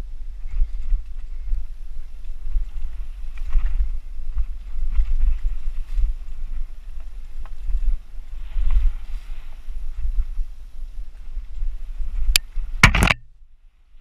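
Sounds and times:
wind buffeting microphone: 0.0s - 14.0s
bike clicks and rattles: 12.2s - 13.3s.

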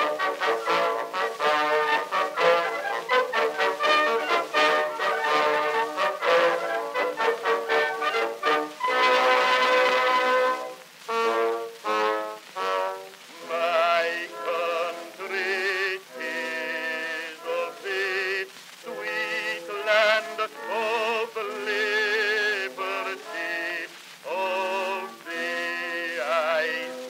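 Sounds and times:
song with singing voice: 0.0s - 27.0s.

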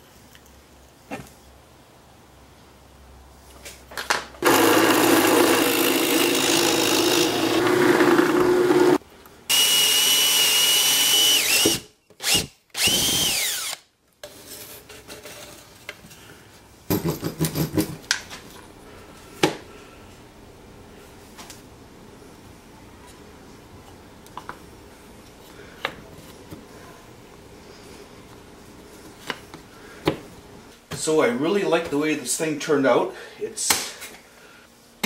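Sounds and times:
cordless drill boring into wood: 4.4s - 13.8s.

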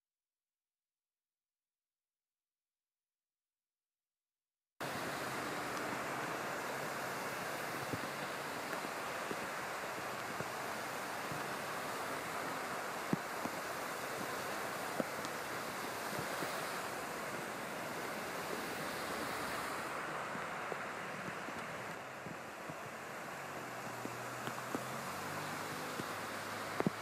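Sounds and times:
cars driving through flood water: 4.8s - 27.0s
faint ticks: 23.6s - 25.0s, 25.9s - 27.0s.

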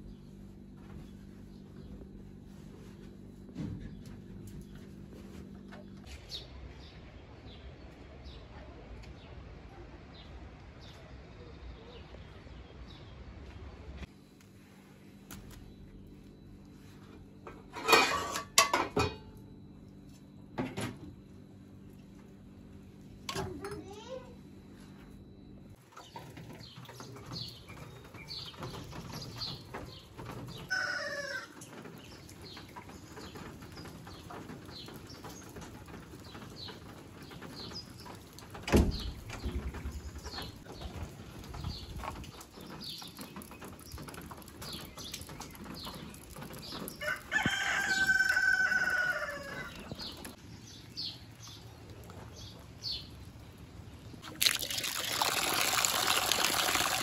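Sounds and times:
small birds chirping: 25.3s - 54.2s
rooster crowing: 30.7s - 31.6s, 47.0s - 50.0s
running water: 54.1s - 57.0s.

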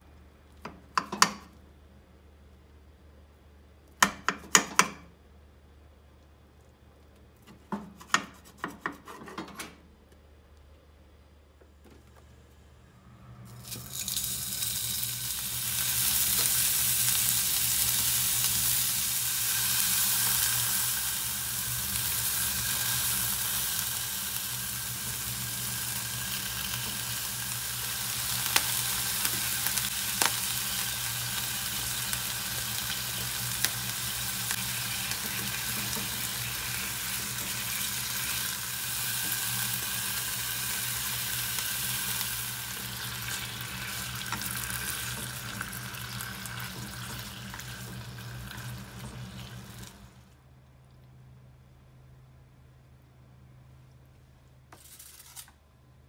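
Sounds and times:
food sizzling in oil in a pan: 13.6s - 50.1s.

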